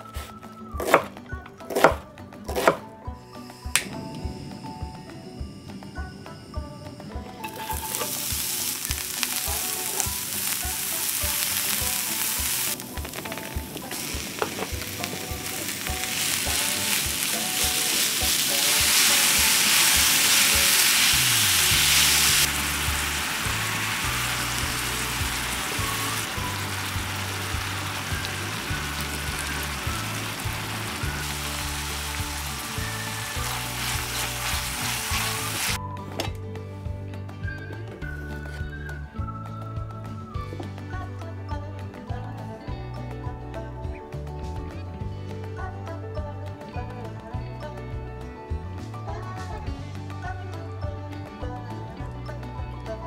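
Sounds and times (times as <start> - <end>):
mince sizzling in a skillet: 7.4 - 35.8.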